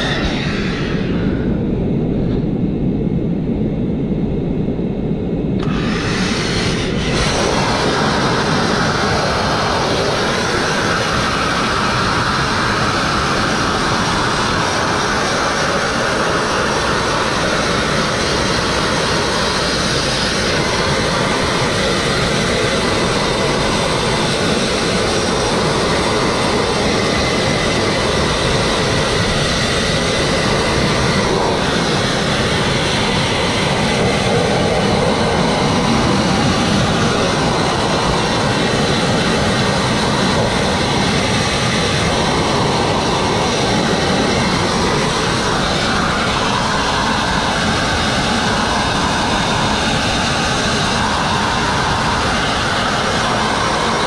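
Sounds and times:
sandblasting nozzle hissing: 5.6s - 29.2s.

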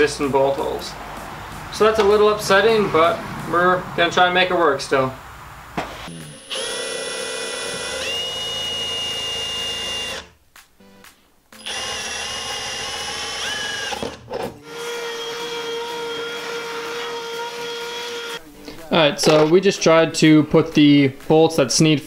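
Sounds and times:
power drill drilling sheet metal: 6.0s - 10.4s, 11.6s - 18.4s.

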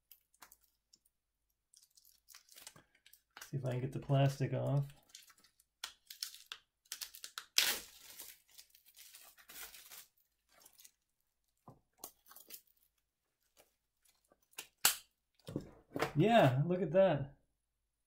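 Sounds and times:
plastic tearing: 1.7s - 3.5s, 4.6s - 11.0s
plastic wrapping crinkling: 1.7s - 14.8s.

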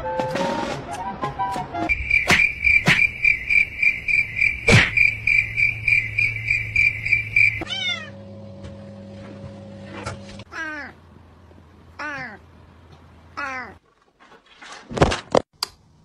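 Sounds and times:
high rhythmic chirping: 1.9s - 7.6s.

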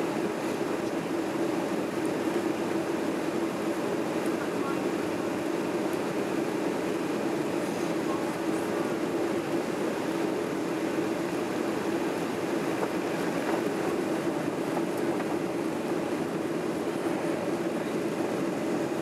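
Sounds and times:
airplane cabin engine noise: 0.0s - 19.0s.

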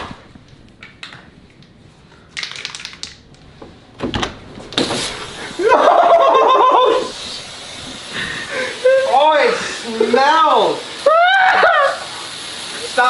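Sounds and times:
aerosol spray hissing: 4.8s - 13.0s
man yelling and screaming: 11.0s - 12.0s.

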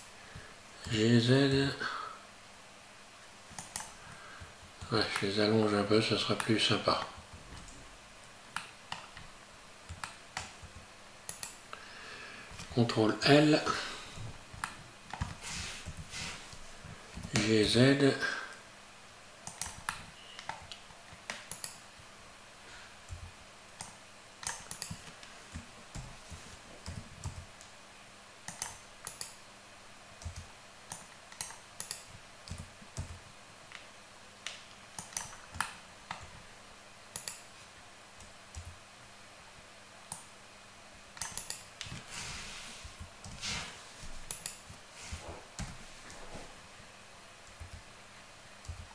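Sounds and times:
keyboard and mouse clicking: 3.5s - 5.3s, 9.9s - 11.6s, 19.4s - 21.8s, 23.1s - 27.7s, 28.4s - 29.4s, 30.2s - 36.4s, 37.1s - 37.5s, 41.2s - 42.0s, 44.2s - 44.8s, 47.4s - 47.9s.

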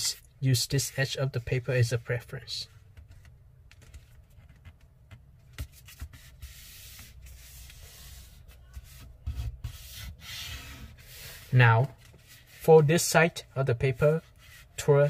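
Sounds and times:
paper rustling and sliding: 5.6s - 12.8s.

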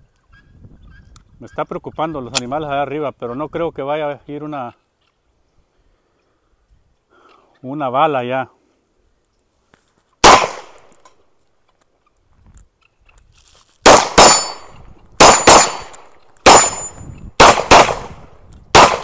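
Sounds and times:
pistol shots: 10.2s - 11.0s, 13.8s - 19.0s
steel plate ringing: 14.2s - 15.9s, 16.5s - 17.1s.

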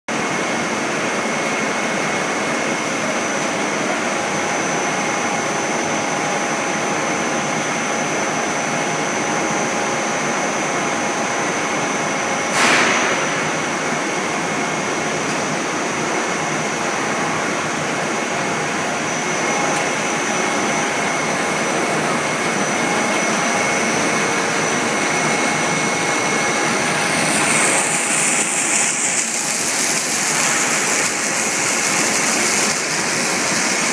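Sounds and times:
machine hiss with high whine: 0.1s - 33.9s
burst of noise: 12.5s - 14.5s, 23.6s - 32.2s.

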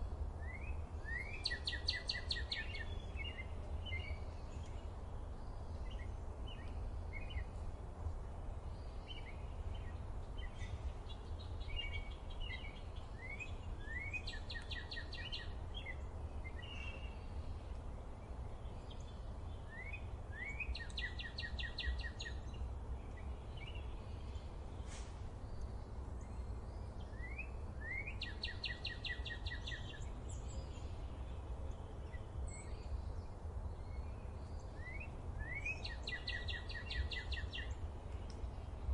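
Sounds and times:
small songbirds chirping: 0.0s - 38.9s
bird song with fast trill: 0.5s - 4.9s, 8.8s - 17.5s, 18.6s - 37.8s
low outdoor rumble: 29.4s - 38.9s.

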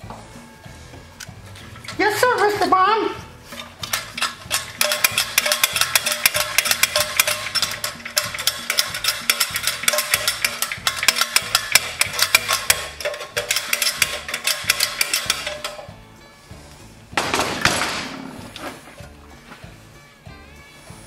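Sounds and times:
background music with bass line: 0.0s - 21.0s
engine rattling when shaken: 3.6s - 15.9s.

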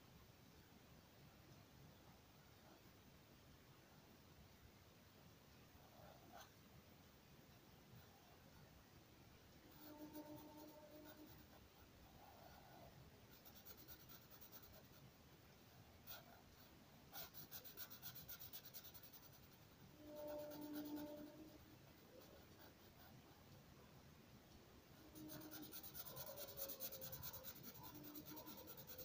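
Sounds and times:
faint low hum: 0.0s - 29.0s
marker scratching on paper: 13.3s - 15.0s, 17.1s - 23.2s, 25.0s - 29.0s.

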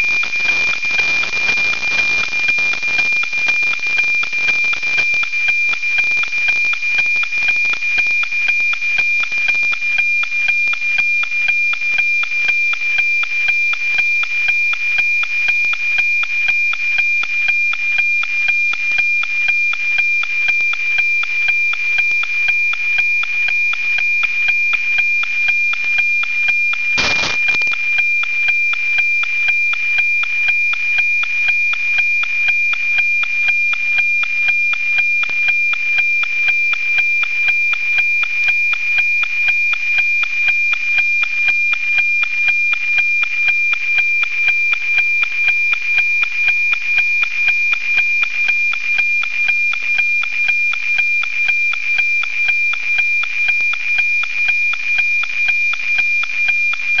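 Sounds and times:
crackle of static: 0.0s - 30.8s
high-pitched tone with ticking: 0.0s - 57.0s.

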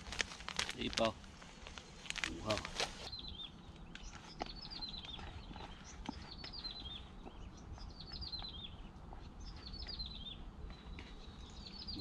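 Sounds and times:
songbird chirping: 2.3s - 12.0s.

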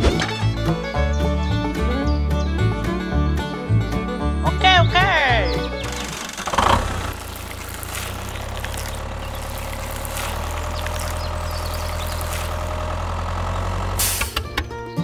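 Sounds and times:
tractor engine running: 5.3s - 14.9s.

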